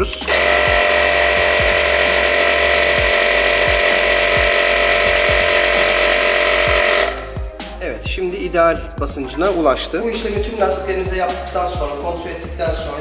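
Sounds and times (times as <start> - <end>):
electric tyre inflator running: 0.0 - 7.6.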